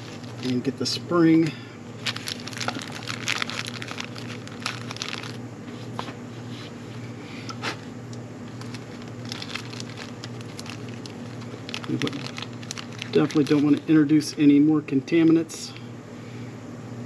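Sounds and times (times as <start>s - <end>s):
plastic bag crinkling: 0.0s - 5.4s, 8.5s - 14.2s.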